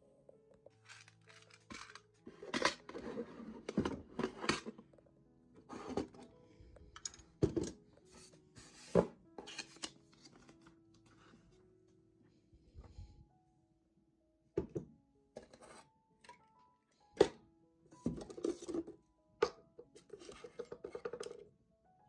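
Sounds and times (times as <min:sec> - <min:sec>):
soft background music: 0:00.0 - 0:22.0
objects knocking on wooden desk: 0:14.6 - 0:15.0.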